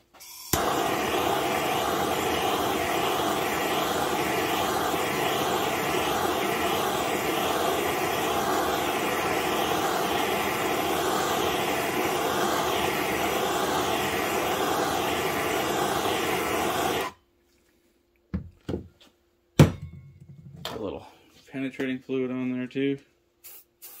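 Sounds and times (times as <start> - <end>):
gas torch flame hissing: 0.2 - 17.2, 23.4 - 24.0.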